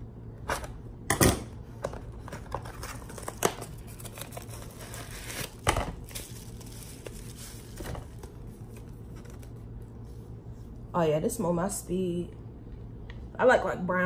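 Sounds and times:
plastic shrink-wrap crinkling: 0:02.4 - 0:09.6
plastic wrap snapping: 0:03.0 - 0:08.3.

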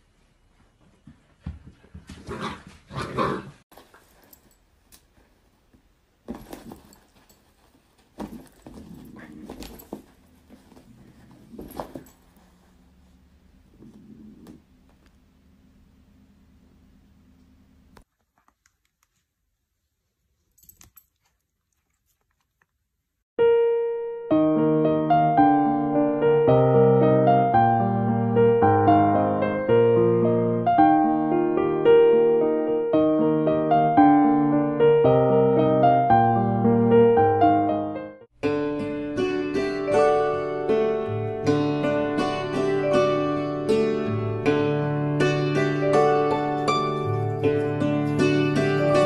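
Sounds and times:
piano music: 0:23.4 - 0:49.0.

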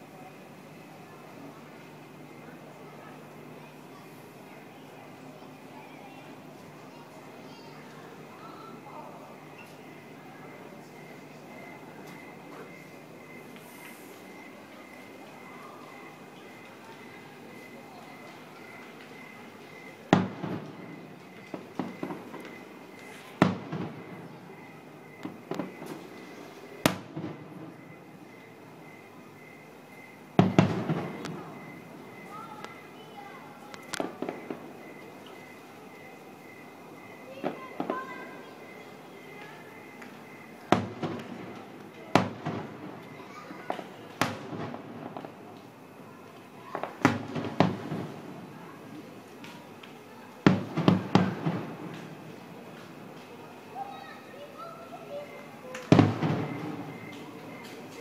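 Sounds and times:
firework pops and crackles: 0:16.5 - 0:24.6, 0:25.2 - 0:27.9, 0:30.4 - 0:32.8, 0:33.7 - 0:35.5, 0:37.4 - 0:38.3, 0:39.4 - 0:53.4, 0:55.6 - 0:58.0
firework shells booming: 0:18.7 - 0:28.0, 0:30.4 - 0:32.3, 0:40.2 - 0:43.1, 0:43.7 - 0:45.7, 0:46.7 - 0:48.5, 0:50.4 - 0:52.2, 0:55.8 - 0:57.7.

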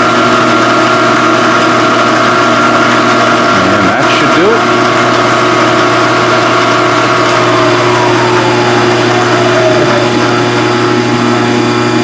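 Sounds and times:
mill motor whine falling in pitch: 0:00.0 - 0:12.0
phase converter humming: 0:00.0 - 0:12.0.

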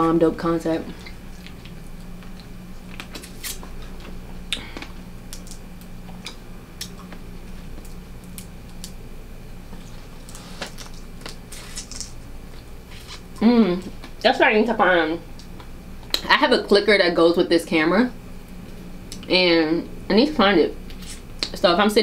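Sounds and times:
steady low hum: 0:00.0 - 0:22.0
crab shells cracking: 0:04.6 - 0:07.2.

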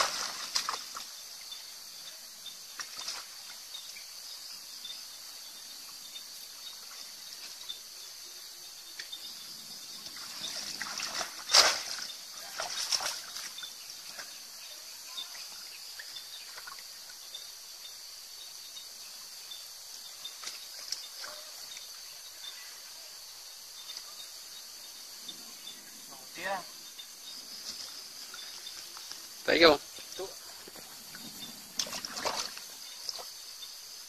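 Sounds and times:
water splashing and sloshing: 0:00.0 - 0:01.4, 0:02.7 - 0:03.8, 0:09.9 - 0:14.5, 0:15.2 - 0:17.2, 0:20.1 - 0:22.2, 0:30.0 - 0:33.7
insects droning: 0:00.0 - 0:34.0.

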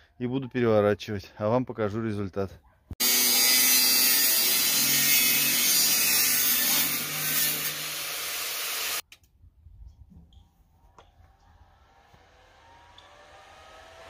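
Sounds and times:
angle grinder grinding steel: 0:03.0 - 0:09.0.

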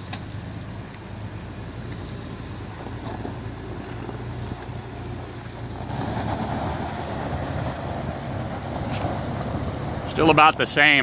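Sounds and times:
engine working under load: 0:00.0 - 0:11.0
tyres digging into muddy gravel: 0:01.8 - 0:11.0.

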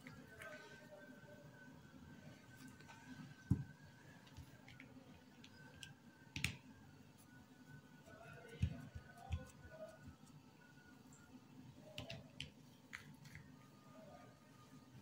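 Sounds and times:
hands patting dough: 0:08.0 - 0:10.4.

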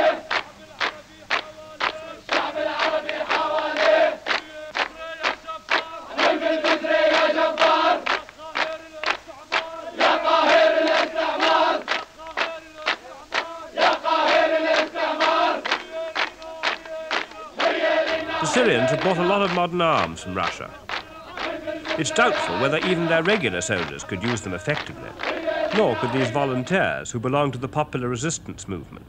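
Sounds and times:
men singing a chanted song: 0:00.0 - 0:26.8
rhythmic clapping: 0:00.0 - 0:26.8.

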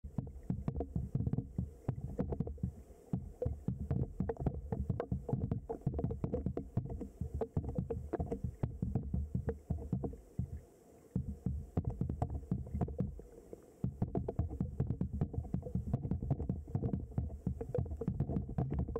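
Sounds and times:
muffled underwater river flow: 0:00.0 - 0:18.9
small underwater clicks and knocks: 0:00.0 - 0:18.9.

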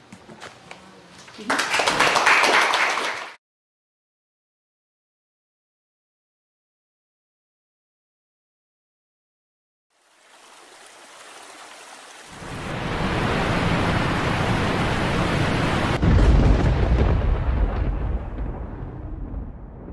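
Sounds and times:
hiss into low rumble: 0:12.4 - 0:19.9
deep boom: 0:15.8 - 0:19.9.

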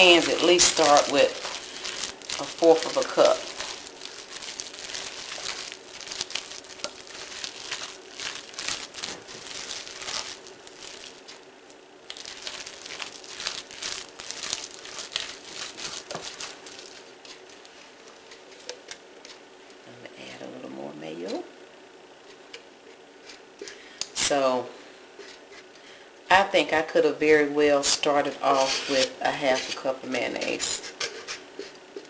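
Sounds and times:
spatula scraping and squishing: 0:00.0 - 0:11.4, 0:12.1 - 0:17.5, 0:28.5 - 0:31.8.

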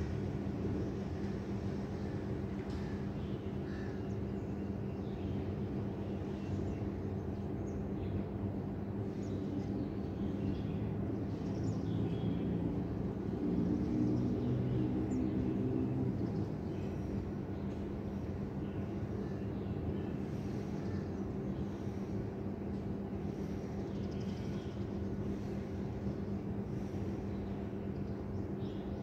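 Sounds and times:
distant traffic hum: 0:00.0 - 0:29.0
engine hum: 0:08.5 - 0:29.0.

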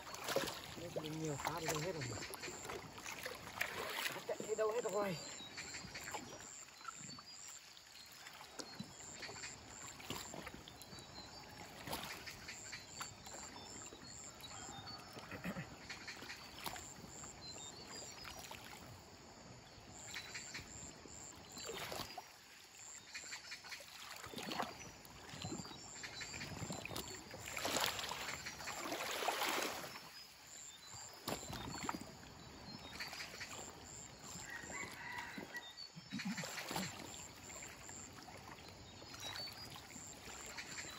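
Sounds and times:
pole splashing and knocking in water: 0:00.0 - 0:06.6, 0:08.3 - 0:11.0, 0:11.6 - 0:13.6, 0:23.8 - 0:30.0, 0:31.0 - 0:32.2, 0:36.2 - 0:38.6
river current washing: 0:00.0 - 0:40.9.

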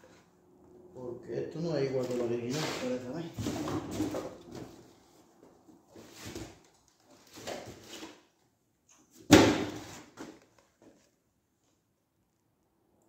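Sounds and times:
parts scraping: 0:02.0 - 0:05.0.

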